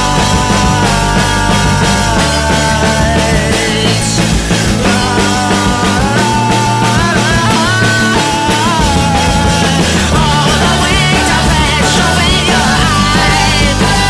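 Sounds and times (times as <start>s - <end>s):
loud rock music: 0.0s - 14.0s.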